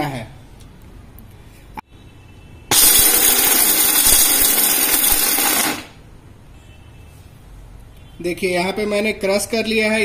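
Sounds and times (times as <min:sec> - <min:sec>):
mixer grinder crushing almonds: 0:02.7 - 0:06.0.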